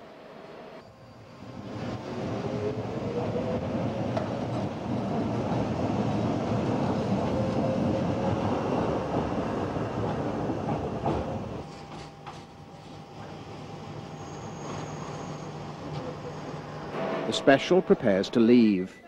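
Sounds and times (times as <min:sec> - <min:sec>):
train wheels rumbling on rails: 0:01.4 - 0:18.8.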